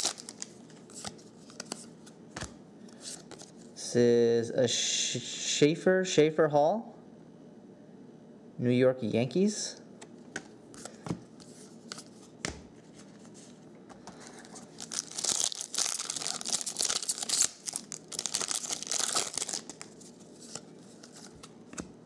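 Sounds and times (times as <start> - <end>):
foil wrapper crackling: 0.0 - 0.5, 14.3 - 20.0.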